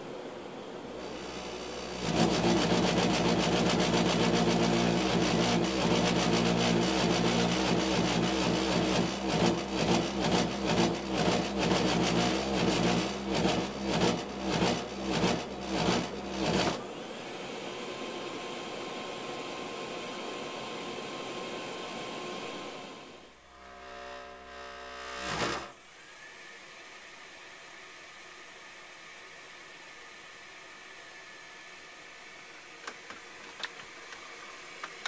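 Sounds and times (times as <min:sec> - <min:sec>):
gas burner humming drone: 0:00.0 - 0:25.8.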